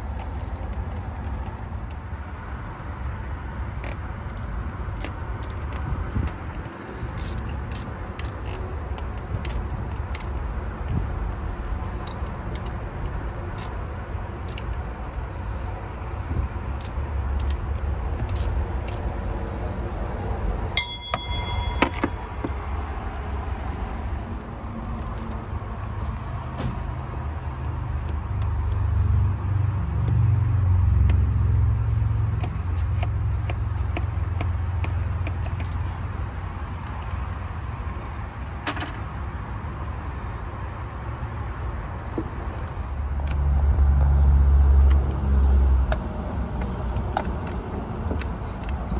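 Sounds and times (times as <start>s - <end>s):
hand ratchet clicking: 3.8s - 14.8s, 16.2s - 19.1s, 30.0s - 38.1s
ringing metal clang: 20.8s - 22.3s
small metal clinks: 20.8s - 22.6s.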